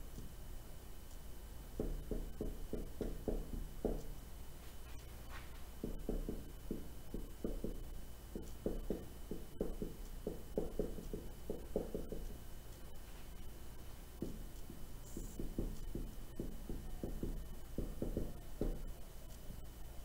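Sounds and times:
steady low hum: 0:00.0 - 0:20.0
marker writing on whiteboard: 0:14.2 - 0:18.9.

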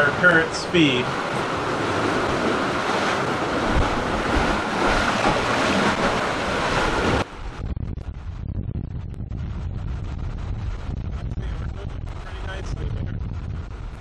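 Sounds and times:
water rushing past hulls: 0:00.0 - 0:07.6
wind buffeting microphone: 0:00.8 - 0:14.0.

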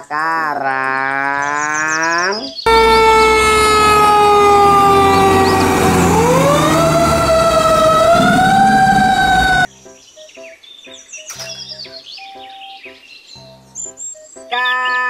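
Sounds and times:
fire engine siren wailing: 0:02.7 - 0:09.7
low engine rumble: 0:02.7 - 0:09.7.

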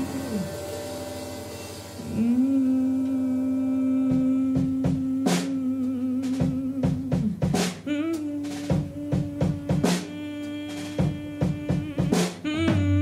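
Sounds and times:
cymbal crashes: 0:00.0 - 0:02.4
drum-kit fills: 0:00.0 - 0:13.0
jazz band long held note: 0:00.0 - 0:13.0.

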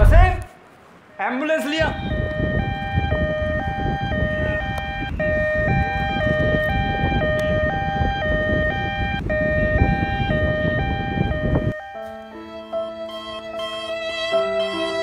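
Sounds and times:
steady rumbling noise: 0:00.0 - 0:00.5
two-tone ambulance siren: 0:01.8 - 0:15.0.

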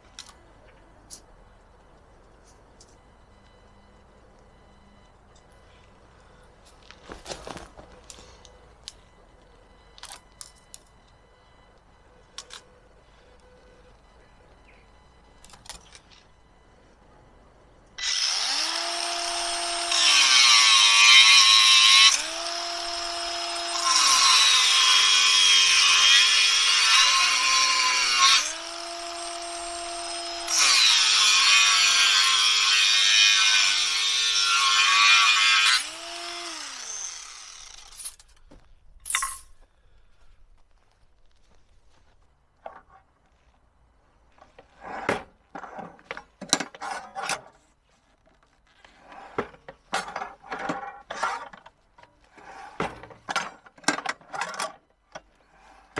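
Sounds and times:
power tool grinding metal: 0:18.0 - 0:38.0.

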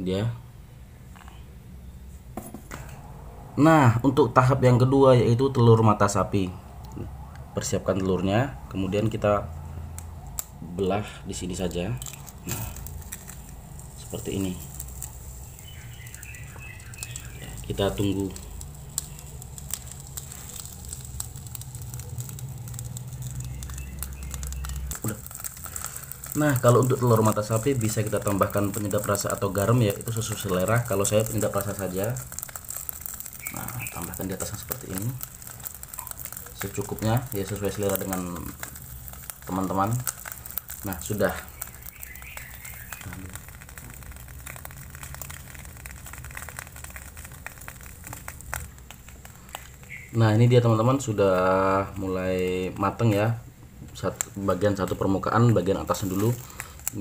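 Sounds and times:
egg frying with crackles and pops: 0:00.9 - 0:57.0
low hum: 0:01.6 - 0:05.3
steady low rush: 0:01.6 - 0:32.5.

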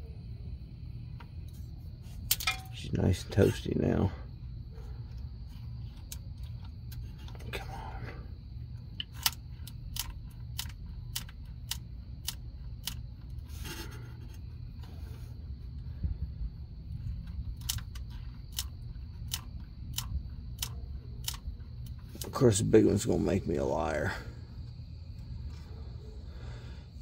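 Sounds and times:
low steady hum: 0:00.0 - 0:27.0.

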